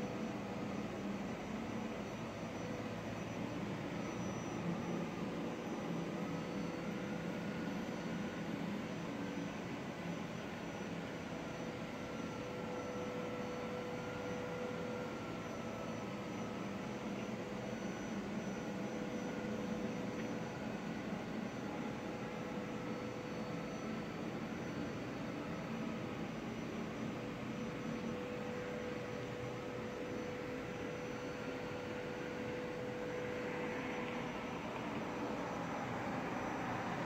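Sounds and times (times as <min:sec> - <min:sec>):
distant machinery hum: 0:00.0 - 0:37.0
faint wavering whine: 0:00.0 - 0:37.0.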